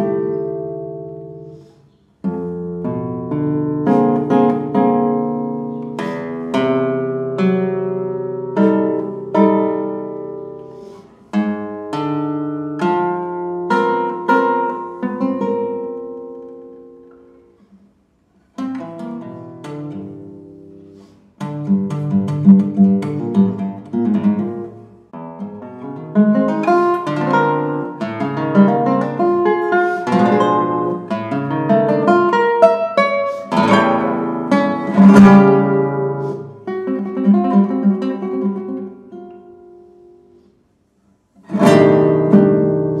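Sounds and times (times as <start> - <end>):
classical guitar playing: 0.0 - 43.0.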